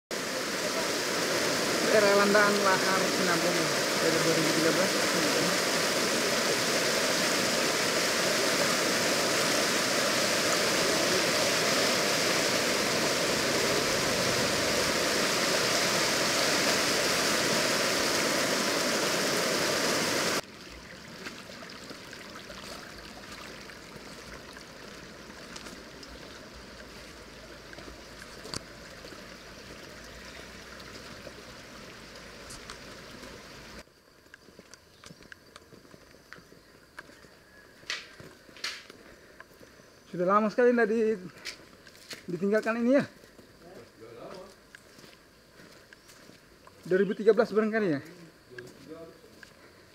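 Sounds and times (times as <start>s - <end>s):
river rushing over rocks: 0.1s - 20.6s
footsteps on stones and gravel: 22.4s - 24.4s, 25.1s - 29.8s, 34.2s - 39.6s, 41.4s - 43.5s.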